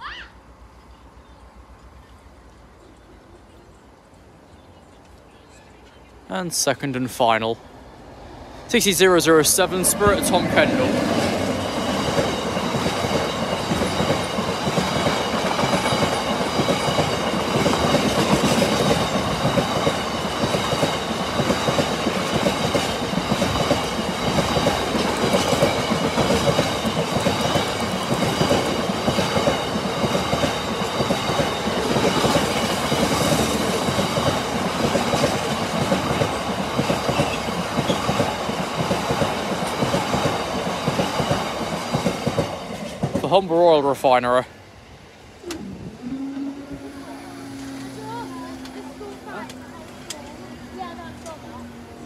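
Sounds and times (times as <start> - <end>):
train wheels clattering on rails: 8.8 - 43.5
high-pitched whine: 45.4 - 49.4.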